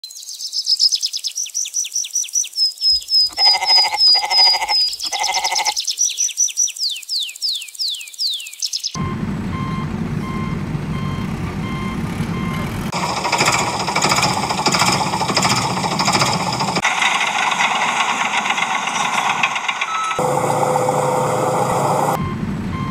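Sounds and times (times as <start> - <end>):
rapid chirping: 0.5 - 9.0, 12.9 - 20.2
reversing beeper: 9.0 - 16.8, 19.0 - 22.9
truck engine running: 9.0 - 22.9.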